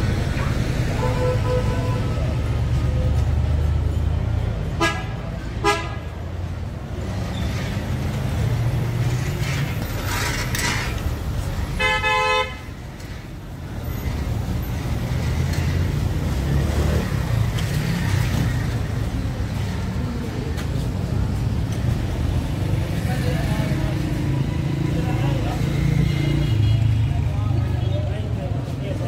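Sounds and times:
traffic engines running: 0.0s - 29.0s
vehicle horn honking: 11.8s - 12.6s.

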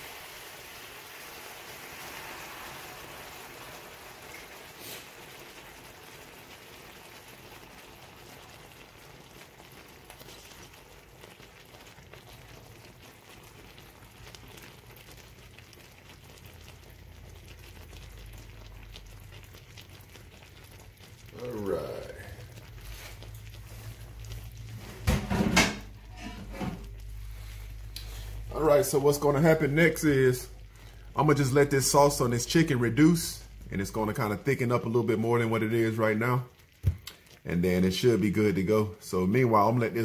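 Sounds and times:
glaze sizzling in skillet: 0.0s - 40.0s.

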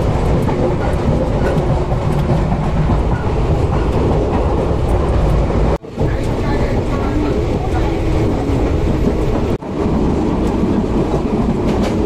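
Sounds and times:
wheels rattling and clicking: 0.0s - 9.6s
train carriage rumble: 0.0s - 12.0s.

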